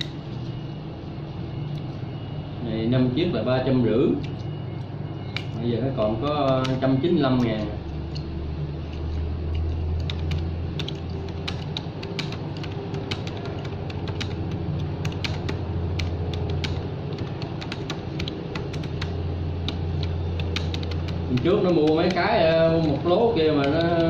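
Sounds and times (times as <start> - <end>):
steady low hum: 0.0 - 24.0
hands clicking and tapping: 10.0 - 23.0, 23.6 - 24.0.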